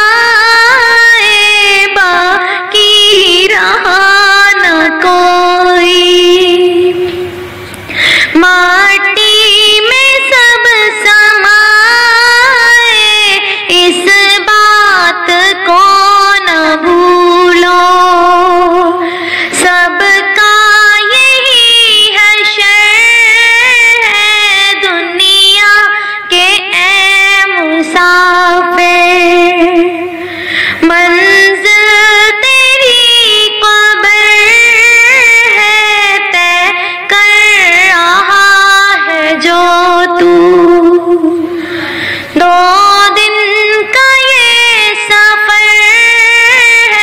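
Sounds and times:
woman singing slow melody: 0:00.0 - 0:07.5, 0:08.3 - 0:41.7, 0:42.4 - 0:47.0.

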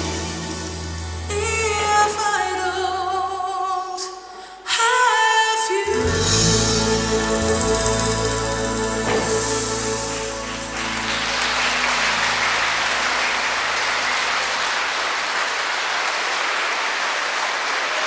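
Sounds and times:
music held notes: 0:05.9 - 0:15.0
audience applauding: 0:07.2 - 0:18.0.

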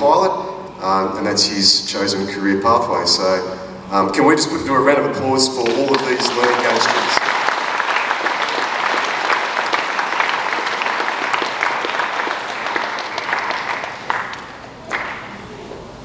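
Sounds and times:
audience applauding: 0:05.6 - 0:15.5.

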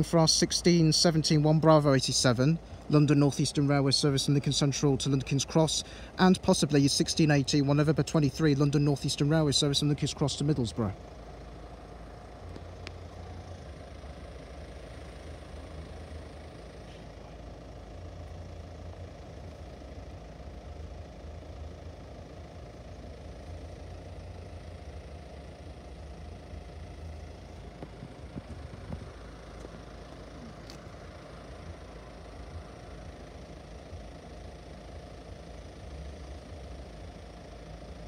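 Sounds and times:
vehicle engine idling: 0:00.0 - 0:38.0.

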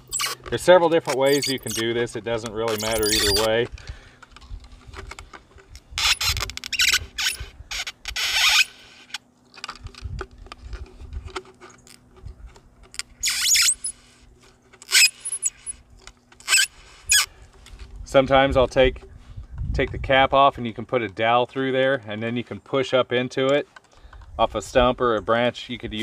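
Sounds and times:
plastic strip squeaking and scraping: 0:00.0 - 0:03.7, 0:04.5 - 0:17.4.

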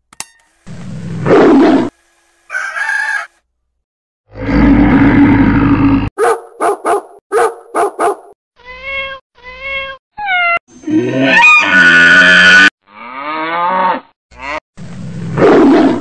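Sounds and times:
cartoon dog barks: 0:01.2 - 0:02.0, 0:06.2 - 0:08.4, 0:15.4 - 0:16.0
loud animal call: 0:02.5 - 0:03.3
cartoon bear growl: 0:04.3 - 0:06.1, 0:10.7 - 0:12.7
cartoon cat meows: 0:08.6 - 0:10.6.

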